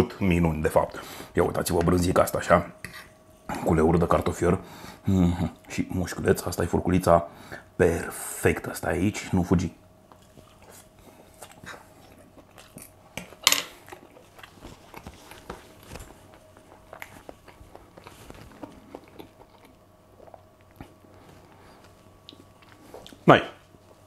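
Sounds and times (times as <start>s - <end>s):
faint steady hum: 0.0s - 24.0s
man chewing food: 9.9s - 24.0s.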